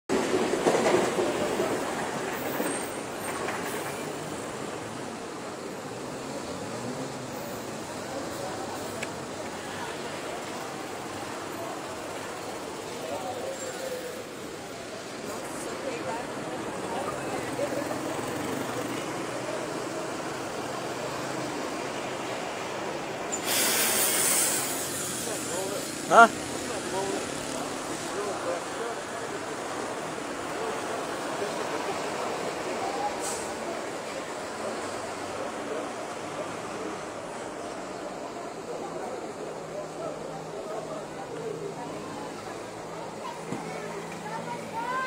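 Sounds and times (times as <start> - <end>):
city bus driving past: 0.1 - 45.0
cars driving past: 1.2 - 45.0
loud hiss: 23.3 - 26.0.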